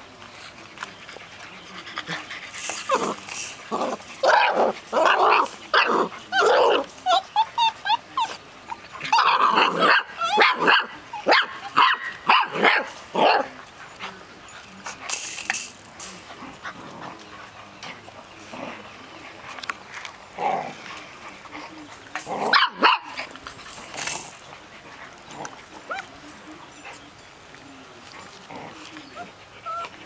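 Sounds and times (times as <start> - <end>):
puppies yipping and whining: 1.1 - 12.6, 21.2 - 30.0.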